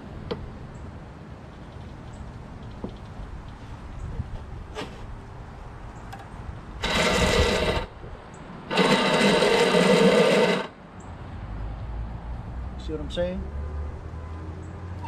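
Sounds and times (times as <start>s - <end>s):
electric starter motor whirring: 6.8s - 7.9s, 8.7s - 10.8s.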